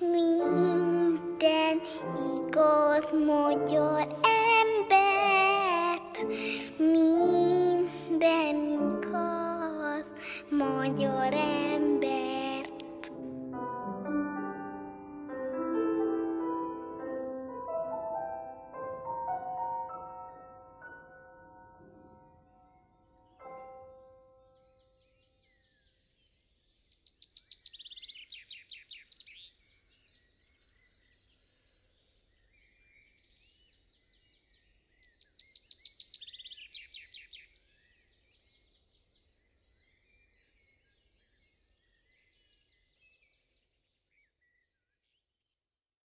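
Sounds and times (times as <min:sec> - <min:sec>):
songbirds singing: 0:21.8 - 0:45.6.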